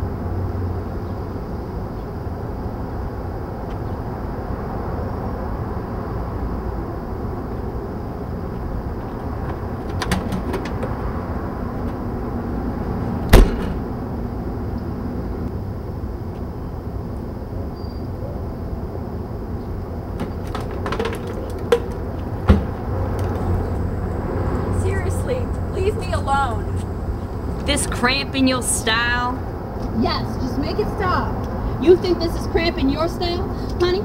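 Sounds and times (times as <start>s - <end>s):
outdoor background rumble: 0.0s - 34.0s
sharp knock: 13.3s - 13.9s.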